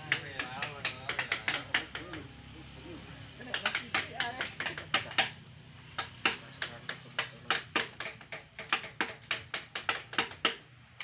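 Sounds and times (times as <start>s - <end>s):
mallet striking chisel into wood: 0.0s - 2.3s, 3.4s - 11.0s.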